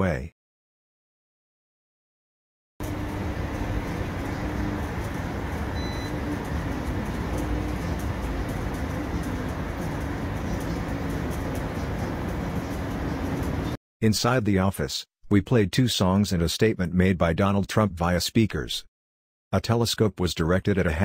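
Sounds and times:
urban road traffic: 2.8s - 13.8s.

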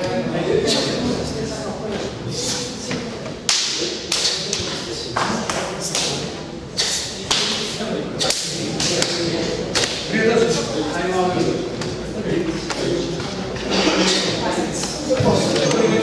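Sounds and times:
murmur of voices: 0.0s - 16.0s
hands slapping bodies: 6.8s - 7.6s, 8.2s - 10.0s.

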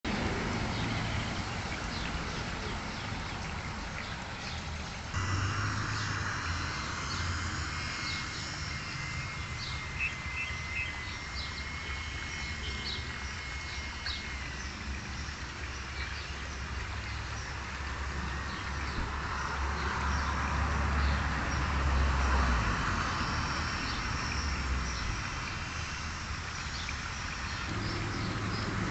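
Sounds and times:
distant traffic rumble: 0.1s - 28.9s
thin steady tone: 5.1s - 17.0s.

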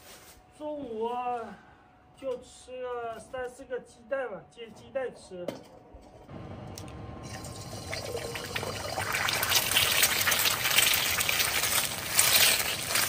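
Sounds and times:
egg sizzling in hot oil: 7.3s - 13.0s.

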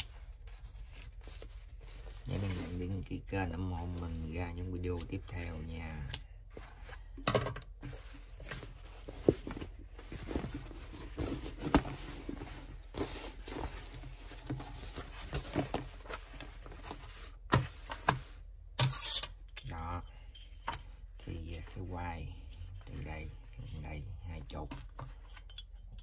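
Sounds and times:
cloth rustling and brushing: 7.8s - 18.5s.

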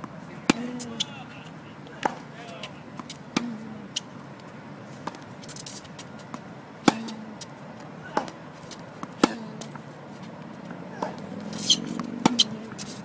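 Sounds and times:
tennis ball bouncing: 0.0s - 1.2s, 1.9s - 4.2s, 5.0s - 13.0s
tennis racket hitting ball: 2.0s - 4.1s, 5.0s - 7.2s, 8.1s - 9.8s, 11.0s - 13.0s.

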